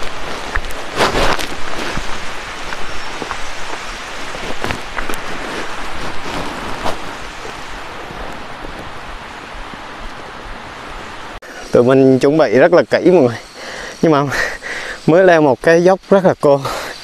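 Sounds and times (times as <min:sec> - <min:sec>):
twigs snapping: 0:00.0 - 0:07.7
footsteps through undergrowth: 0:00.0 - 0:09.0
steady rushing hiss: 0:00.0 - 0:17.0.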